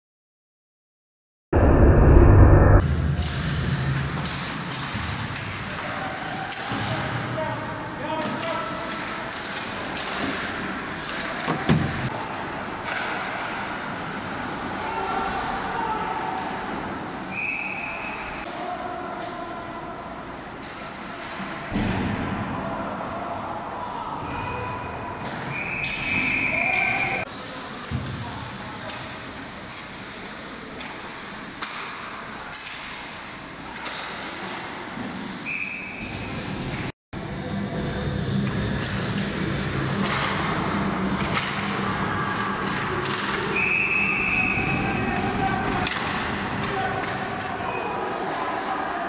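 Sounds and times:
hockey sticks and puck clacking: 3.2s - 7.3s, 8.1s - 17.0s, 29.7s - 35.3s, 38.8s - 49.0s
hockey sticks clacking: 8.2s - 14.0s, 29.7s - 35.2s, 44.6s - 47.5s
referee's whistle: 17.3s - 18.4s, 25.5s - 27.2s, 35.4s - 36.2s, 43.5s - 45.0s.

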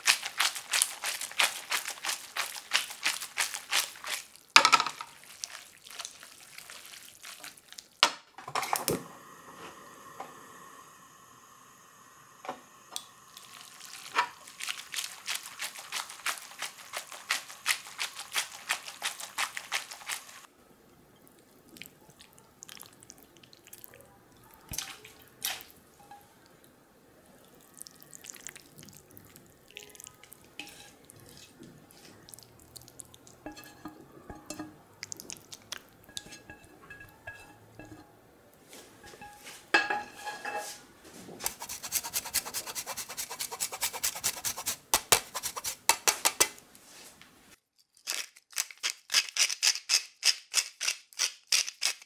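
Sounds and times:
pasta crackling in frying pan: 0.0s - 8.0s, 13.0s - 20.5s, 27.6s - 38.2s
pasta squelching: 0.0s - 8.0s, 13.3s - 20.5s, 21.3s - 40.5s, 41.4s - 47.1s.

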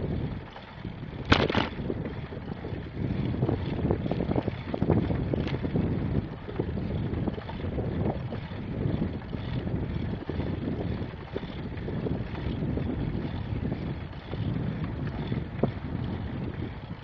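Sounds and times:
wind buffeting microphone: 0.0s - 17.0s
knocks and rattles: 1.2s - 1.8s
sharp clatter: 1.2s - 1.8s.

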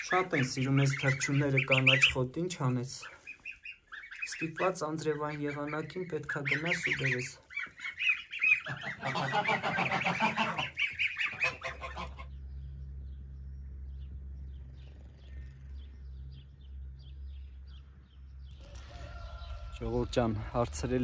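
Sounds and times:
goslings and geese calling: 0.0s - 12.9s
low steady hum: 0.0s - 21.0s.

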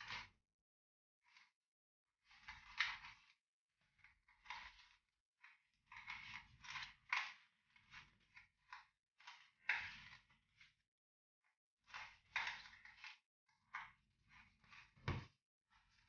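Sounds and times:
spatula scraping gritty sugar: 4.2s - 10.8s.

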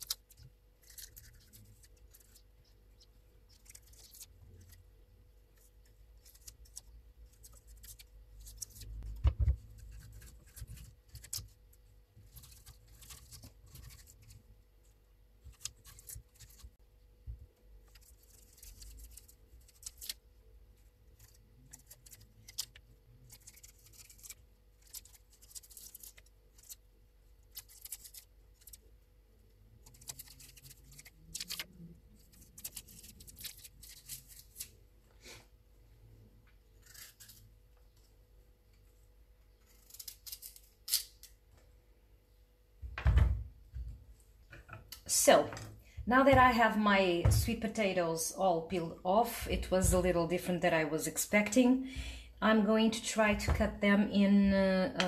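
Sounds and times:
knife scraping sweet potato skin: 36.8s - 37.5s
thump: 42.8s - 43.4s.

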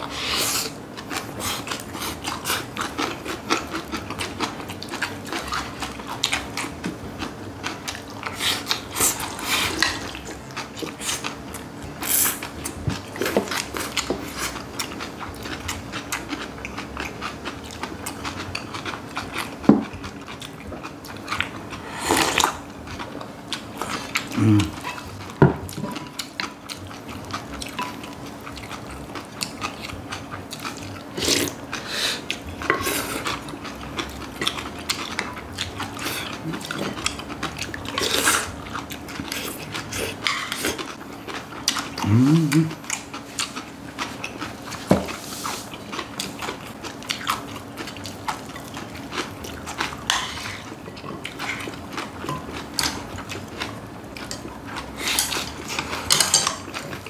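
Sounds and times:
crunchy chewing: 0.0s - 57.0s
spoons clicking against bowls: 55.1s - 56.8s.

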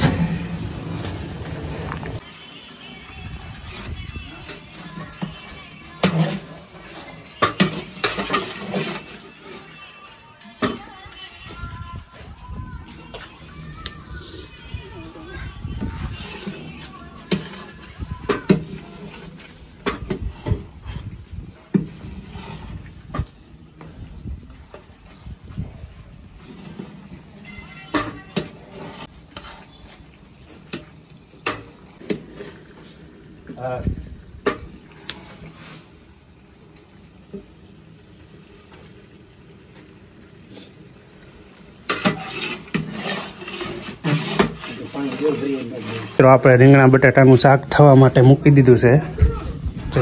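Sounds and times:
vegetables sizzling in a pot: 0.0s - 48.9s
wooden paddle scraping a pot: 3.6s - 9.8s, 13.0s - 24.0s, 24.7s - 33.0s, 34.5s - 36.0s, 41.8s - 50.0s.

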